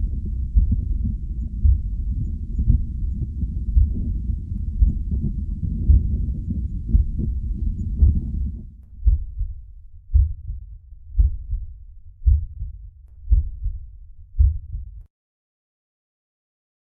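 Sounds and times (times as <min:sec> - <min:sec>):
low rumble: 0:00.0 - 0:15.1
slow deep thuds: 0:00.0 - 0:15.1.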